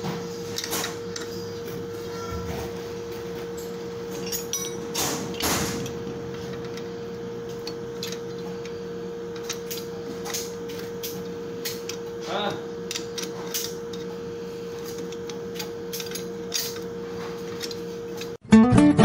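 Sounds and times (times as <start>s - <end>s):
steady hum: 0.0s - 18.6s
metal clinks and scraping: 3.5s - 6.9s.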